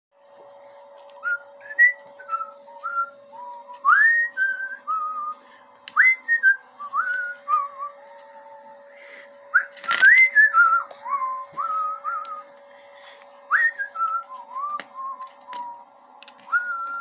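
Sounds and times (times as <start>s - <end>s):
faint steady hum: 0.2s - 17.0s
person whistling a tune: 1.2s - 5.4s, 6.0s - 8.0s, 8.9s - 12.5s, 13.5s - 15.8s, 16.5s - 17.0s.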